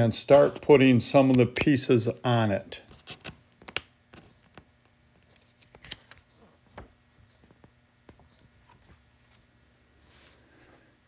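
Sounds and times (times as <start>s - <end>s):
faint clicks and taps: 3.0s - 9.4s.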